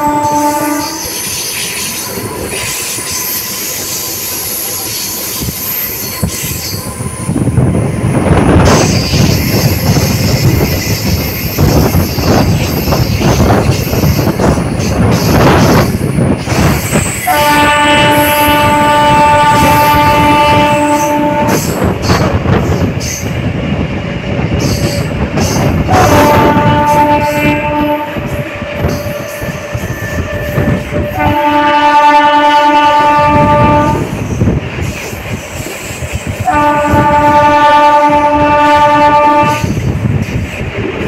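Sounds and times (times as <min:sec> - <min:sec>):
train horn: 0:00.0 - 0:01.3, 0:17.2 - 0:22.3, 0:25.8 - 0:34.2, 0:36.4 - 0:39.8
train wheels clattering on track: 0:00.0 - 0:41.0.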